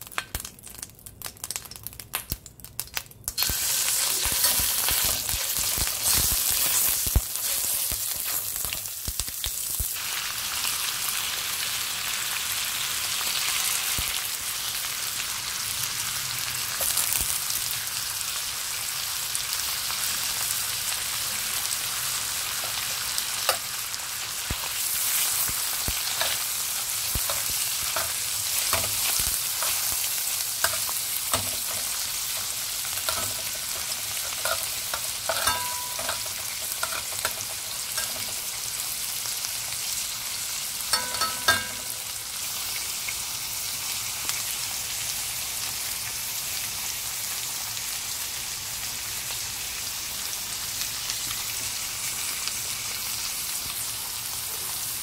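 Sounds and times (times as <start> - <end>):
meat sizzling in a pan: 0.0 - 55.0
metal tongs clinking on pan: 3.4 - 8.8, 22.7 - 23.7, 25.8 - 38.5, 40.9 - 42.2.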